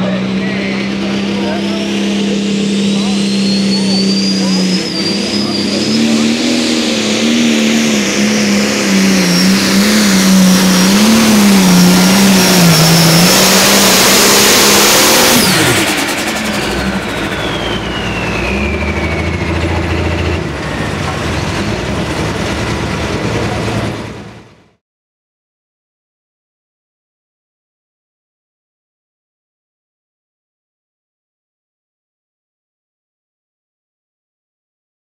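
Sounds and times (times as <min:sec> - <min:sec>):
tractor diesel engine under load: 0:00.0 - 0:24.8
turbo whistle: 0:01.7 - 0:21.1.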